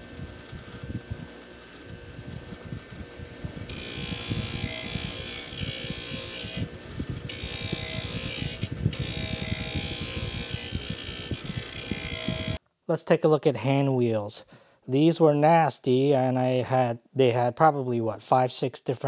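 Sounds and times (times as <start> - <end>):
grinder motor hum: 0.0 - 12.6.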